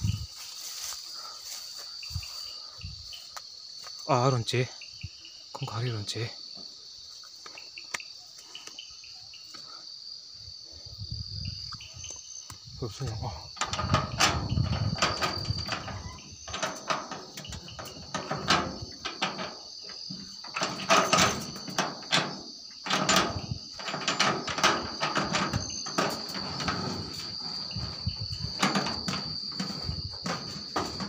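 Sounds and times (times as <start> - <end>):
crickets trilling: 0.0 - 31.0
handling rustles and knocks: 13.5 - 31.0.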